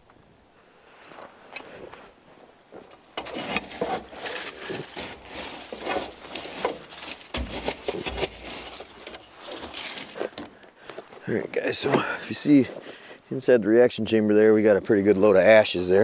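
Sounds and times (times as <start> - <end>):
burning coals scraping and clattering: 1.0 - 13.0.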